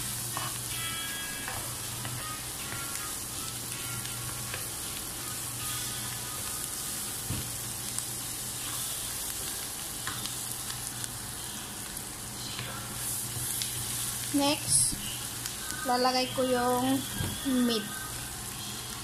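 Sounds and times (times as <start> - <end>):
vegetables sizzling in a pan: 0.0 - 19.0.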